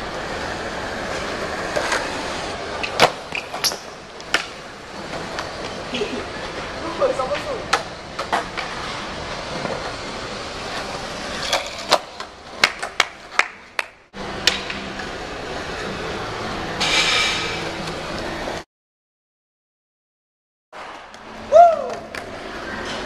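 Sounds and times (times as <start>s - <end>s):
skateboard wheels rolling on stone: 0.0s - 16.2s
skateboards clacking on floor: 10.7s - 13.6s.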